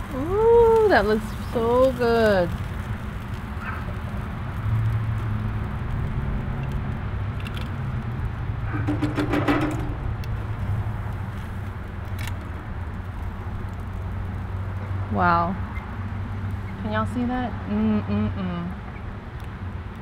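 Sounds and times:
grill basket rattling on metal grate: 8.6s - 12.8s.

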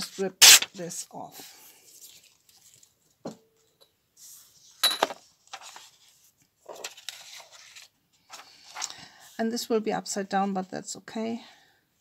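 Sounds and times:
paper tearing: 0.0s - 0.9s
paper rustling: 5.4s - 9.2s.

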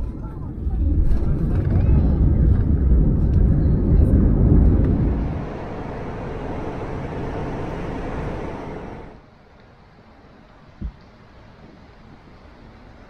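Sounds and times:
airliner cabin rumble: 0.0s - 9.2s
subway car rushing rumble: 0.0s - 9.3s.

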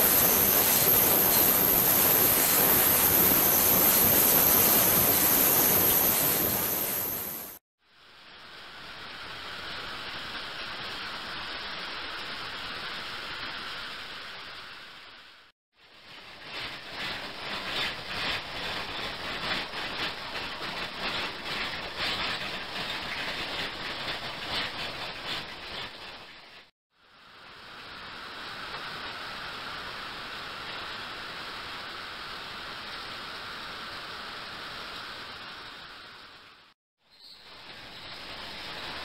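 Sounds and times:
ultrasonic cleaner hissing: 0.0s - 7.6s.

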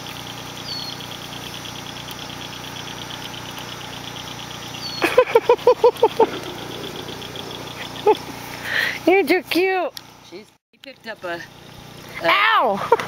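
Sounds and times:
crickets chirping: 0.6s - 9.1s
steady low hum: 4.8s - 9.1s.

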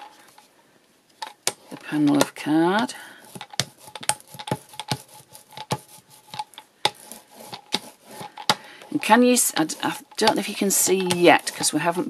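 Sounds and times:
rubber brayer clicking on textured card: 3.3s - 12.0s.

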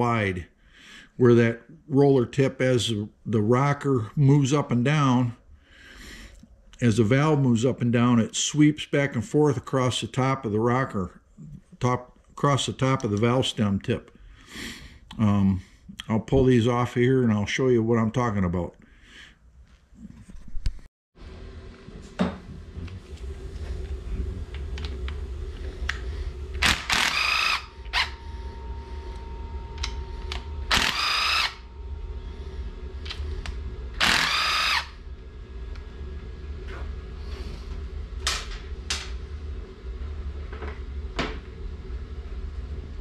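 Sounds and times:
low steady hum: 0.0s - 43.0s
cordless drill whirring: 26.6s - 28.2s, 29.8s - 31.6s, 34.0s - 35.0s
tool and parts clicking: 29.8s - 31.5s.

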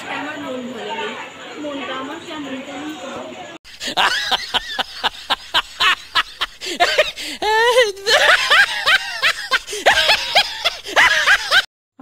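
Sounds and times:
hearty laughter: 3.7s - 11.7s
wavering warbling laugh: 3.8s - 11.7s.

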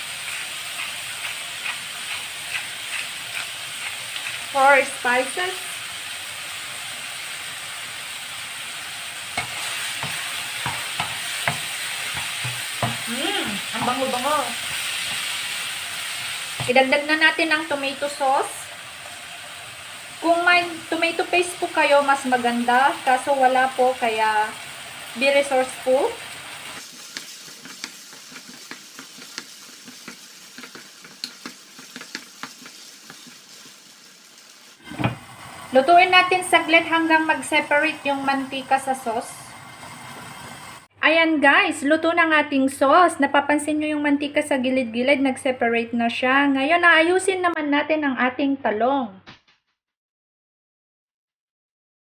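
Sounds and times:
wooden spatula scraping a pan: 0.0s - 5.4s, 9.4s - 17.0s, 26.7s - 34.2s
meat and vegetables sizzling in a wok: 0.0s - 40.9s.

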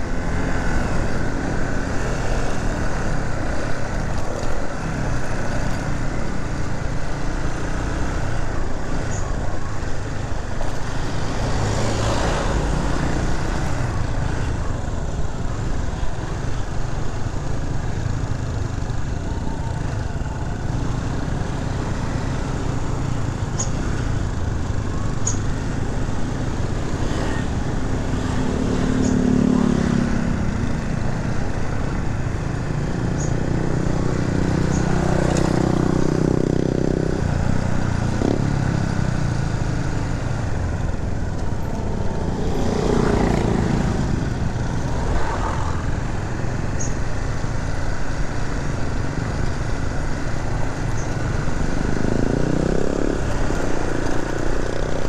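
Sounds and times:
motorcycle engine low rumble: 12.6s - 55.0s.

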